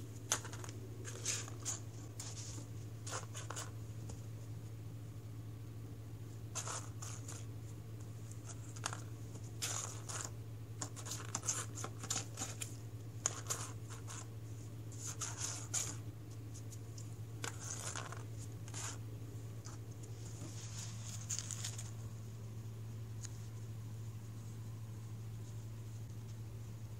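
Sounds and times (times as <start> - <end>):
claws and plastic scratching cardboard: 0.0 - 4.2, 6.5 - 14.3, 14.9 - 19.0, 19.6 - 22.0
low hum: 0.0 - 26.9.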